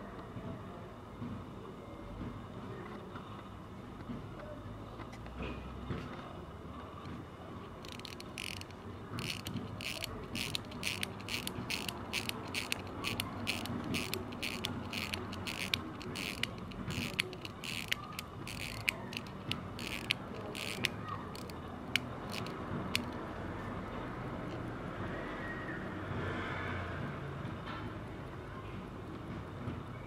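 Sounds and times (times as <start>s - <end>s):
watch winding ratchet clicks: 7.8s - 23.3s.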